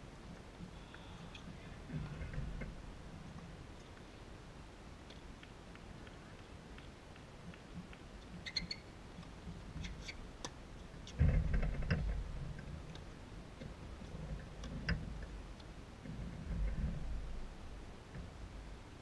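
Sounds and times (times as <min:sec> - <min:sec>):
shoe squeaks: 0:08.4 - 0:08.9.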